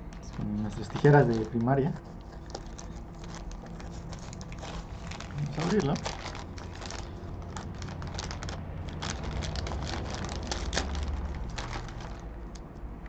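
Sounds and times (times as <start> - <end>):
plastic bag crinkling: 0.2 - 12.7.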